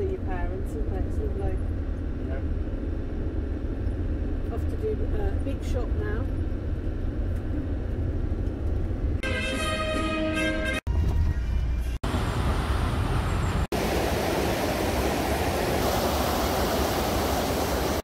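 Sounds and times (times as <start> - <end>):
vehicle road noise: 10.9 - 18.0.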